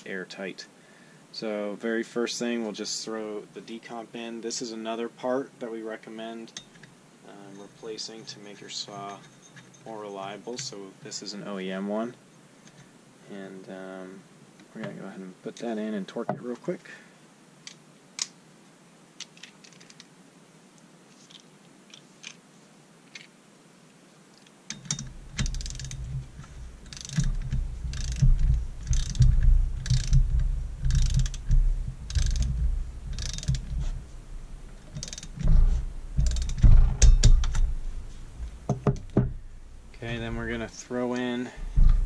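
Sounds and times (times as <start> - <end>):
ratchet wrench clicking: 24.7 - 26.2, 26.8 - 33.9, 34.8 - 35.5, 36.2 - 37.8.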